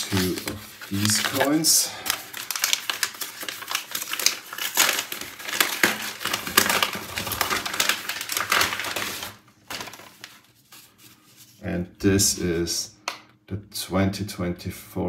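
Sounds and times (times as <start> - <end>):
paper packaging crinkling: 0.0 - 11.6.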